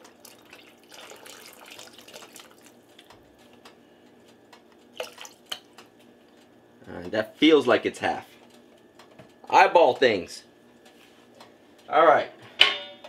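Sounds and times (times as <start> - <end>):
liquid pouring into pot: 0.0 - 2.8, 5.0 - 5.6.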